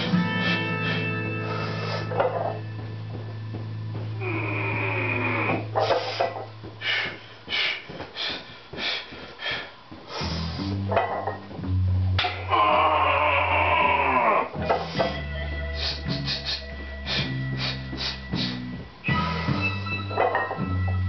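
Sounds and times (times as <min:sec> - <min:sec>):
man breathing hard and fast: 0:00.0 - 0:02.6, 0:05.7 - 0:10.9, 0:14.6 - 0:19.8.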